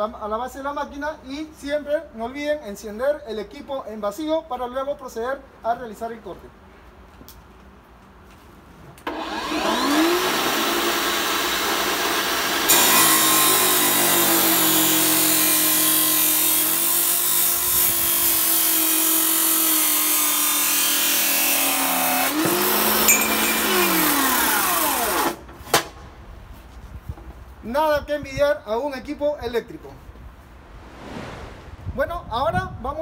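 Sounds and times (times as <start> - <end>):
cut-off saw motor whining: 9.1 - 17.2
saw disc grinding through metal: 12.7 - 18.6, 21.5 - 24.9.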